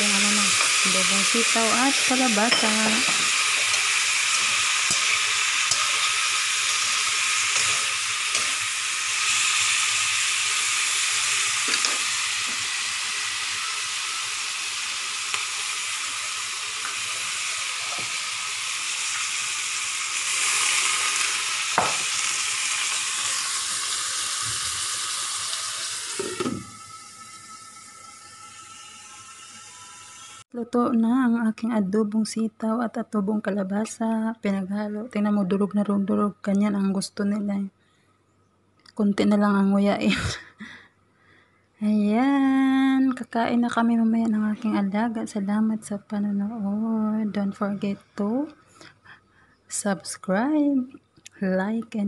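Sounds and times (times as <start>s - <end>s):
vegetables sizzling in a wok: 0.0s - 30.5s.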